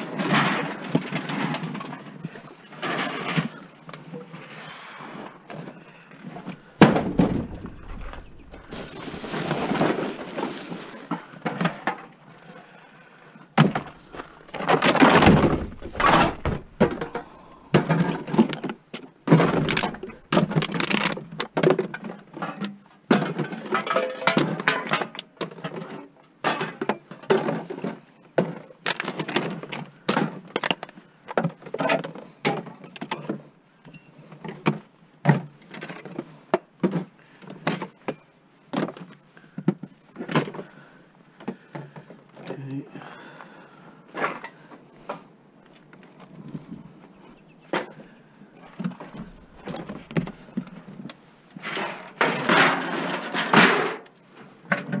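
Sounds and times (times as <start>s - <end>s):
scrap items knocking and clattering: 6.3s - 12.1s, 13.6s - 29.6s, 48.7s - 51.0s, 51.6s - 54.1s.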